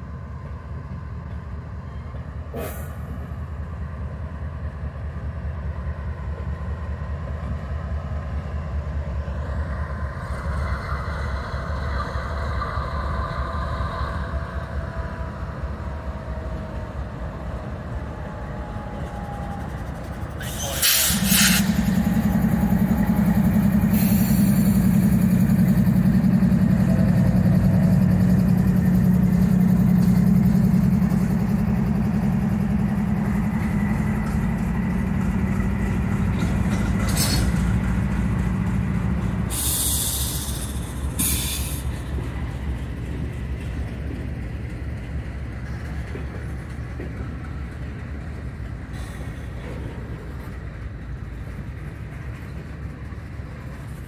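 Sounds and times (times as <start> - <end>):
diesel locomotives passing: 0.0 - 54.0
short bursts of hiss: 39.5 - 41.9.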